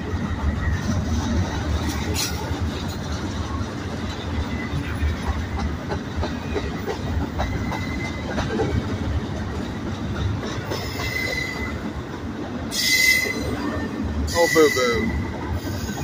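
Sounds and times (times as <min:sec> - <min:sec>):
freight train wheels rumbling: 0:00.0 - 0:16.0
high wheel squeal: 0:10.8 - 0:11.8, 0:12.7 - 0:16.0.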